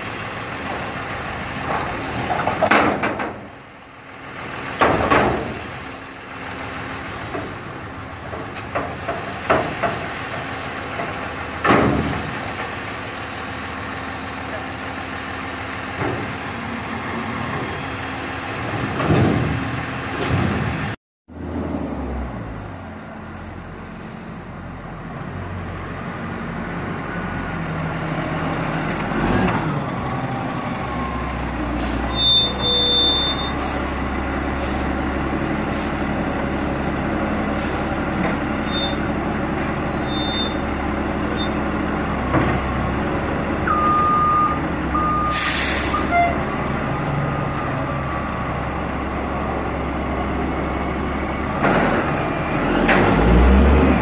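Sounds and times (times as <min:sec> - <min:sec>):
diesel truck engine: 0:00.0 - 0:54.0
short beeps: 0:43.7 - 0:45.4
air brake hiss: 0:45.2 - 0:46.2.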